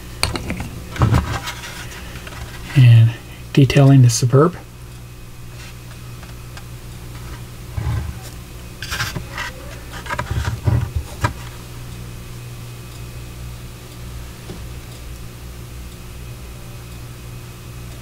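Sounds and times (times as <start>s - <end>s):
steady low hum: 0.0s - 18.0s
plastic knocks and scrapes: 7.2s - 11.5s.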